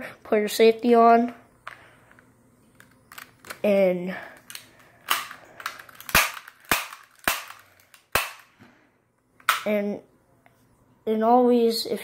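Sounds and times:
airsoft pistol shots: 6.1s - 8.5s.

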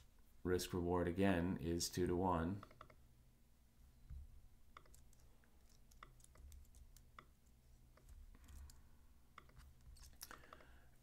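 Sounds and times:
computer keyboard and mouse clicks: 2.6s - 3.0s, 4.7s - 10.8s.

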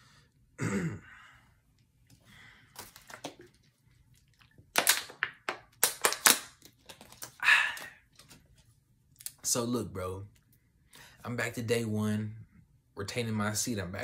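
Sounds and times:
plastic bottle crackling: 2.8s - 7.4s.

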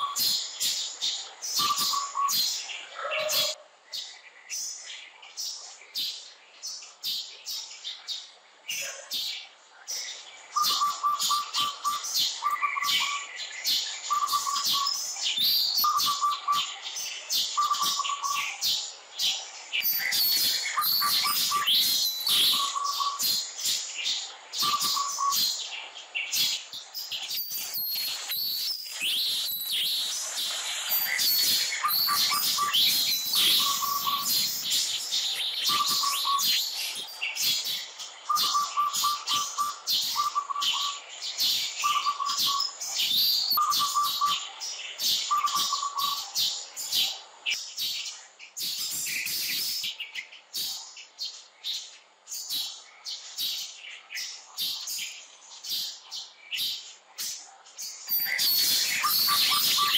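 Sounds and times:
birds chirping: 0.0s - 59.9s
lower-pitched bird call: 1.6s - 3.6s, 10.6s - 13.3s, 14.1s - 16.7s, 30.9s - 37.1s, 58.1s - 59.9s.

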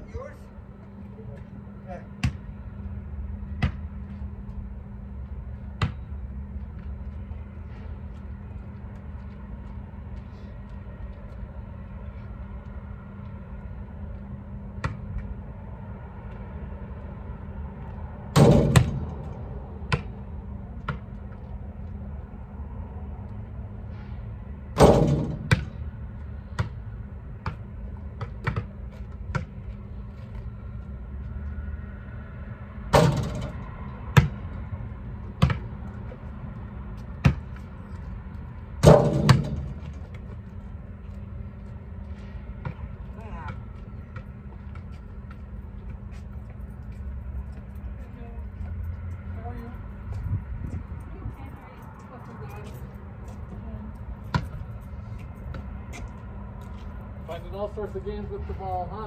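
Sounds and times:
low hum: 0.0s - 59.0s
ball bouncing on asphalt: 2.1s - 2.6s, 3.5s - 4.6s, 5.5s - 7.3s, 14.0s - 15.4s, 17.8s - 22.0s, 24.8s - 31.4s, 32.9s - 40.6s, 42.5s - 46.6s, 54.2s - 56.8s
basketball hitting backboard and rim: 2.2s - 2.5s, 3.6s - 3.9s, 18.3s - 19.3s, 24.7s - 25.8s, 27.4s - 29.6s, 32.9s - 34.4s, 35.3s - 35.7s, 37.2s - 37.6s, 38.8s - 40.2s.

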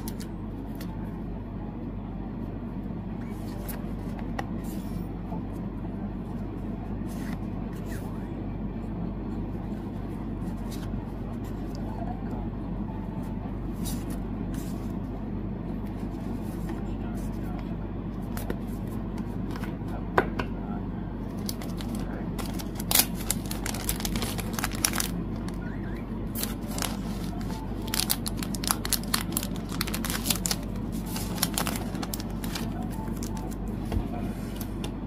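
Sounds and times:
steady low hum: 0.0s - 35.0s
packaging crinkling and tearing: 21.4s - 25.6s, 26.4s - 33.5s.

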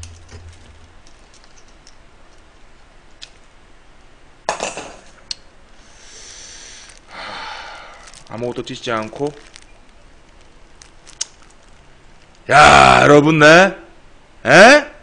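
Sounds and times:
shells clattering: 0.0s - 2.5s
soft hiss of shell opening: 5.8s - 8.3s.

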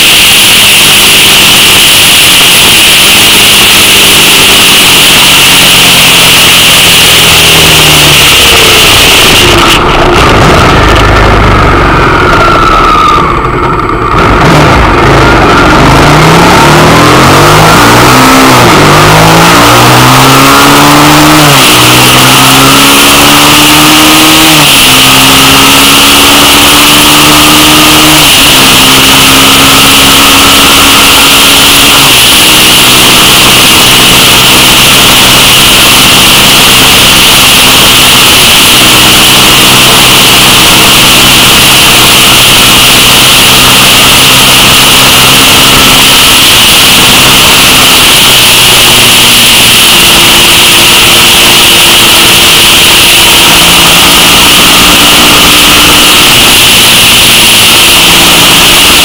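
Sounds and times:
motorcycle engine accelerating: 0.0s - 59.0s.

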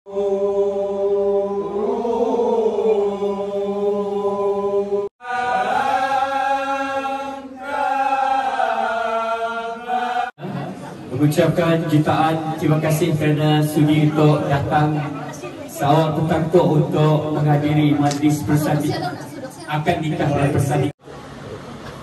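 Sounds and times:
men chanting in long notes: 0.1s - 10.4s.

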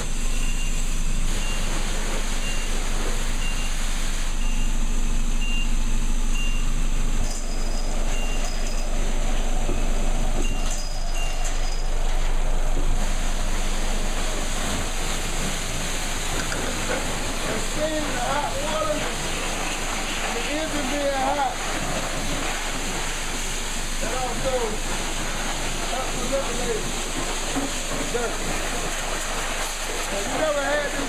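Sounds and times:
car wash machinery running: 0.0s - 31.0s
short high electronic beep: 0.2s - 1.8s, 2.4s - 9.0s, 9.6s - 12.0s.

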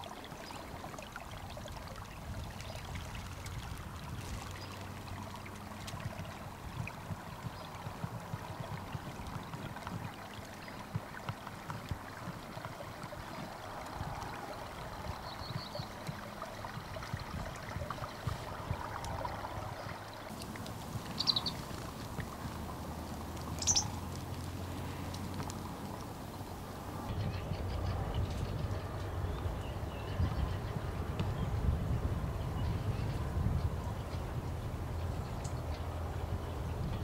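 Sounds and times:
water lapping and trickling: 0.0s - 37.0s
bird chirps: 21.1s - 21.7s, 23.5s - 24.0s.

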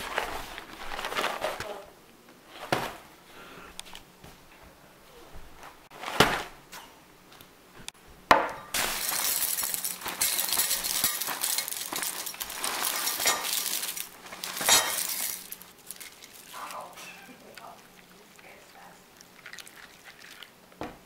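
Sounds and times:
cereal pouring into bowl: 8.8s - 16.9s.

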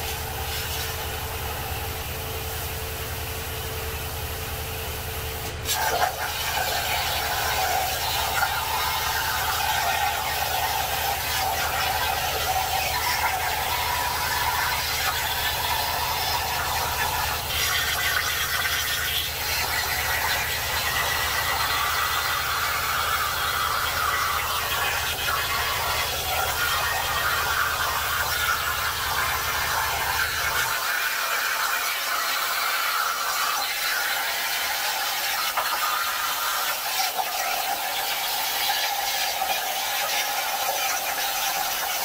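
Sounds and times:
plasma cutter hissing screech: 5.7s - 41.6s.

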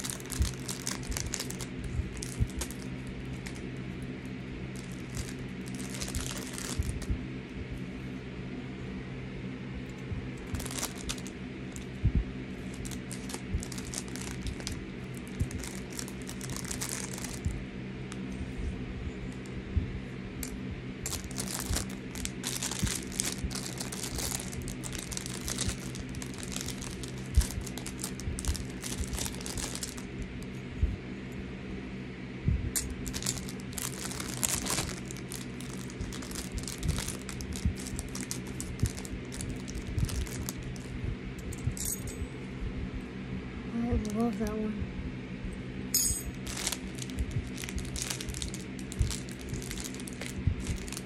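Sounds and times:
plastic packaging crinkling: 0.0s - 7.1s, 10.4s - 11.9s, 12.6s - 18.2s, 21.0s - 30.4s, 32.8s - 40.9s, 46.3s - 51.0s
steady low hum: 0.0s - 51.0s.

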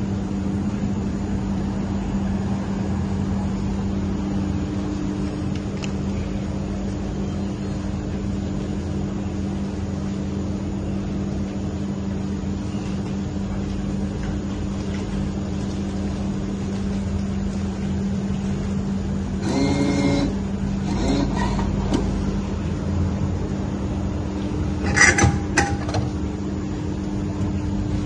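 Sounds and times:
electric machine hum: 0.0s - 28.0s.

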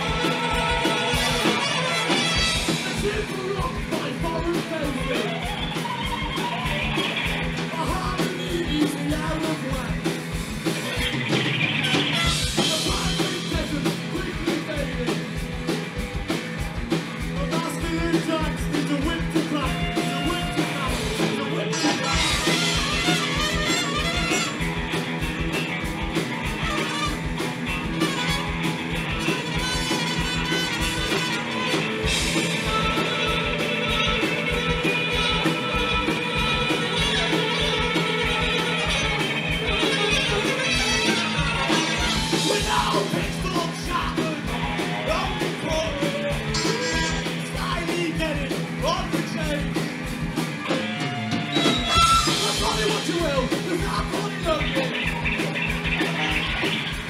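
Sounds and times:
trumpet: 0.0s - 3.3s, 11.8s - 12.6s, 19.8s - 24.8s, 26.5s - 42.8s, 46.5s - 47.8s, 50.9s - 53.1s
person singing: 0.0s - 10.0s, 12.2s - 15.5s, 17.4s - 24.6s, 29.3s - 49.8s, 50.7s - 55.1s
bass guitar: 0.0s - 57.0s
drum beat: 0.0s - 57.0s
electric guitars: 0.0s - 57.0s.

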